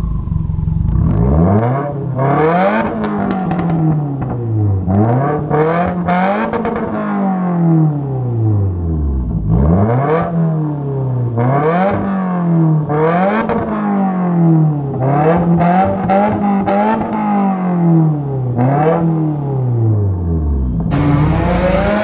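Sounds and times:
car engine revving: 0.0 - 7.0, 20.7 - 22.0
exhaust crackles: 20.9 - 22.0.

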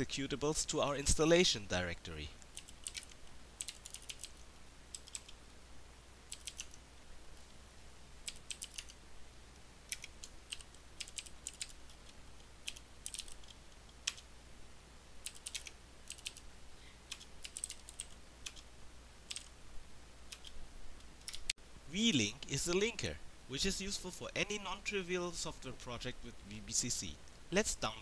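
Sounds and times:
keyboard typing: 2.6 - 5.4, 6.3 - 6.8, 8.2 - 9.0, 9.9 - 14.3, 15.2 - 16.4, 17.1 - 18.7, 19.3 - 19.5.

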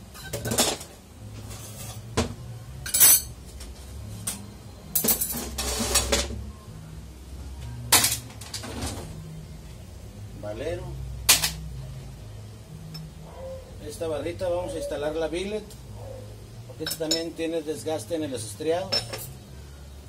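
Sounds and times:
metal parts clinking and knocking: 18.9 - 19.4.

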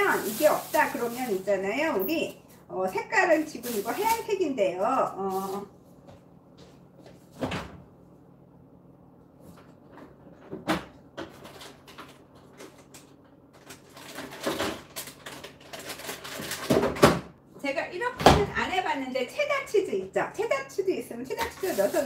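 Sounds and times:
faint steady hum: 0.0 - 16.4.

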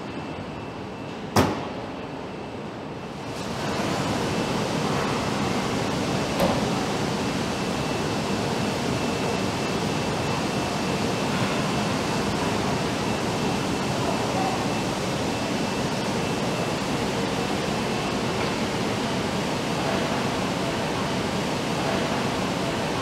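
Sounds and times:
factory machinery and ventilation: 0.0 - 23.0.

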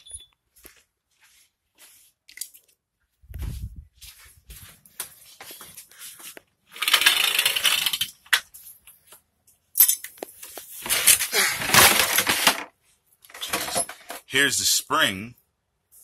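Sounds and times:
hands rummaging through tools: 5.4 - 14.3.

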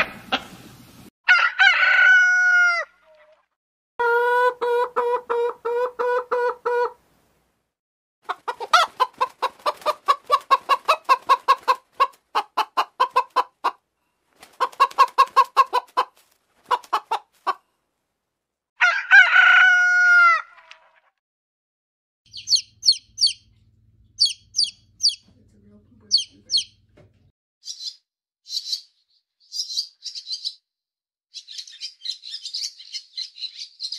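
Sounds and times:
rooster crowing: 1.3 - 3.0, 18.8 - 20.6
chicken clucking: 4.0 - 7.0, 8.2 - 13.8, 14.4 - 17.6.

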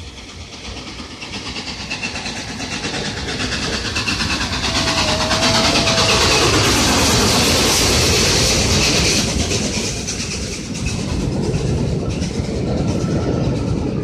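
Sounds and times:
steam locomotive pulsing: 0.0 - 14.0.

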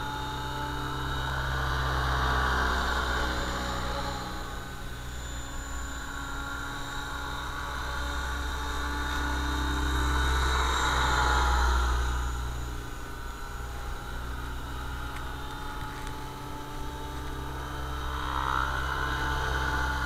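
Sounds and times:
high motor whine: 0.0 - 20.0
model helicopter rotor thrum: 0.0 - 20.0.

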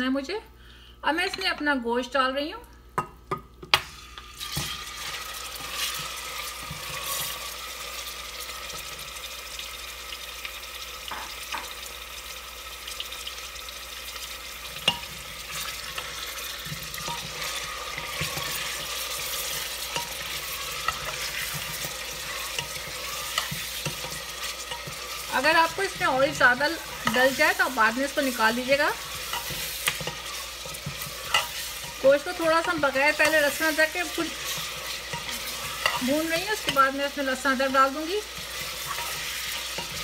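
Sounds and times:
meat sizzling in hot oil: 3.7 - 40.0
spatula scraping pot: 4.4 - 7.4, 14.8 - 40.0.

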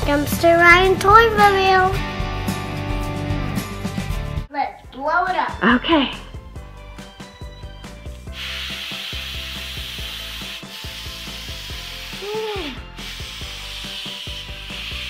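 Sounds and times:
helium hissing into balloon: 8.2 - 15.0.

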